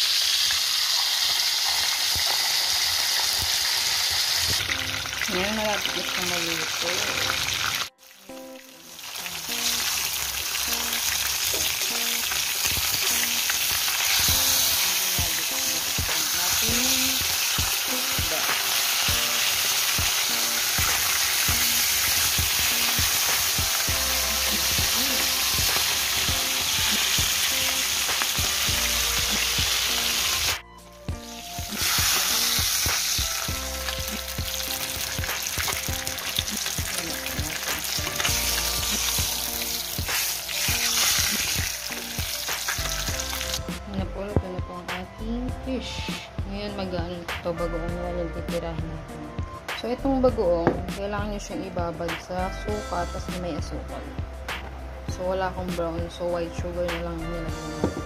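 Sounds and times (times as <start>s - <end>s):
fish sizzling in hot oil: 0.0s - 30.6s, 31.2s - 43.7s.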